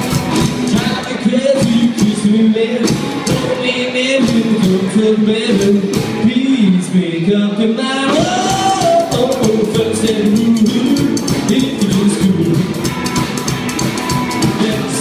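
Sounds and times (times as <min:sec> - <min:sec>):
drum kit: 0:00.0 - 0:07.0, 0:08.0 - 0:15.0
electric guitar: 0:00.0 - 0:15.0
man singing: 0:00.6 - 0:12.8, 0:14.4 - 0:15.0
slapped upright bass: 0:08.1 - 0:15.0.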